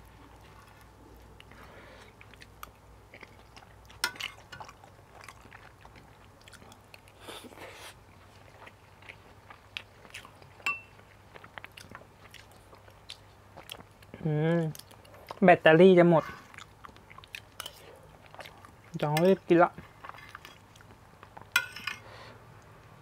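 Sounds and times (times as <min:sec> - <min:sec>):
chewing food: 0:00.0 - 0:21.6
spoon clinking on plate: 0:10.7 - 0:10.9, 0:21.6 - 0:22.0
metal spoon scraping on plate: 0:21.6 - 0:22.0.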